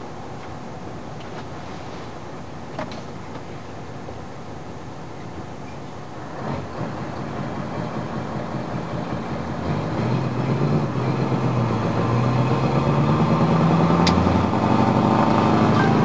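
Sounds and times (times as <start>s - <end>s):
truck diesel engine drone: 0.0s - 16.0s
sharp click: 14.0s - 14.2s.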